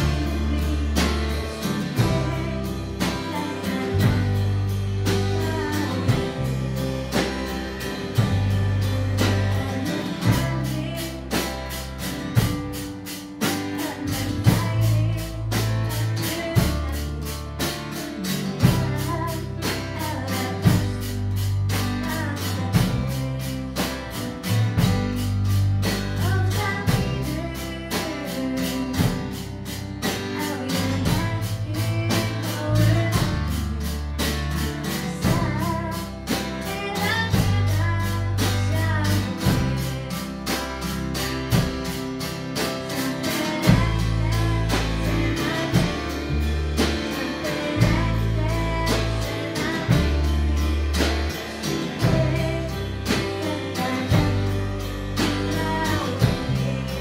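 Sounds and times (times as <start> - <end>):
young woman singing: 0.0 - 11.8, 13.4 - 24.9, 25.9 - 40.9, 42.8 - 57.0
acoustic guitar: 0.0 - 57.0
drum kit steady beat: 0.0 - 57.0.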